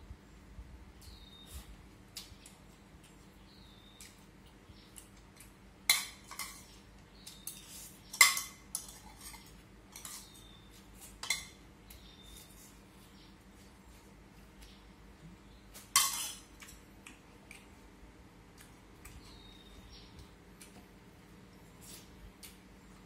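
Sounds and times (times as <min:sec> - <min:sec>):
utensils clinking against a bowl: 0:05.4 - 0:11.6, 0:15.8 - 0:16.8.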